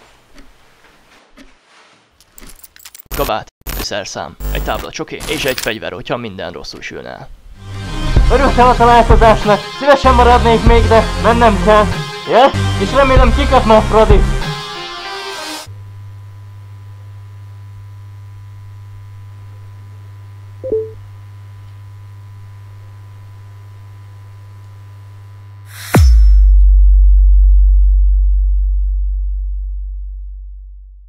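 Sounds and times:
short electronic blip: 20.6s - 21.0s
deep bass boom: 26.2s - 31.0s.

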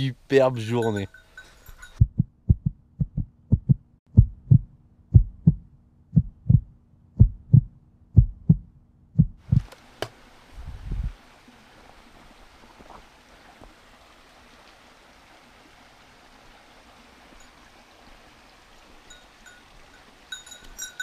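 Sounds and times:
heartbeat thuds: 2.0s - 9.7s.

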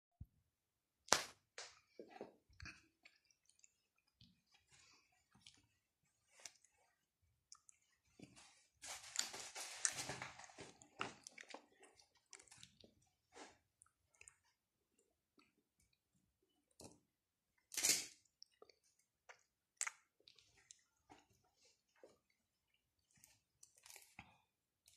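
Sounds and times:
cloth pages rustling: 8.3s - 10.8s.

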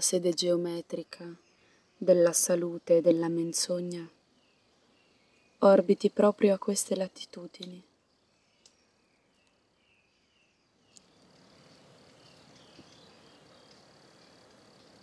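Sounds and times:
faint hiss with thin tone: 0.0s - 15.0s
click: 7.6s - 7.8s.

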